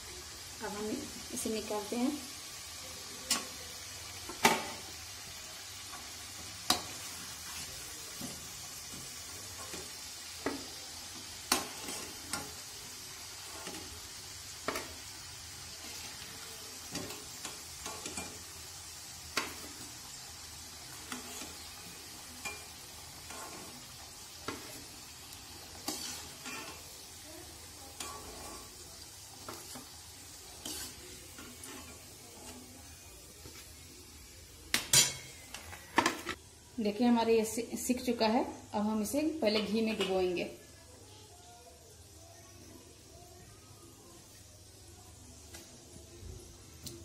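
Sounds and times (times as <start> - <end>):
food sizzling in hot oil: 0.0 - 47.0
metal spoon clinking on pan: 16.9 - 18.5, 22.4 - 23.7, 28.0 - 28.7, 34.9 - 35.4.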